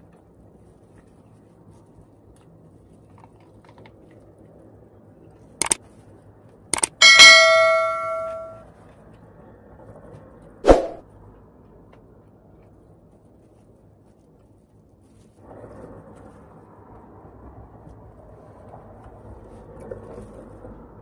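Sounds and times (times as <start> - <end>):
bell chime: 6.8 - 8.6.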